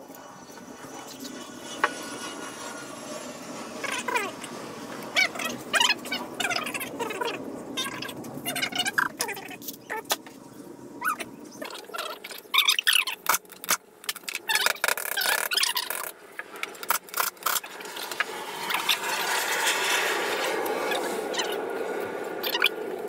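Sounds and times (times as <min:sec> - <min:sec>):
squeaks: 0:11.0 - 0:16.1.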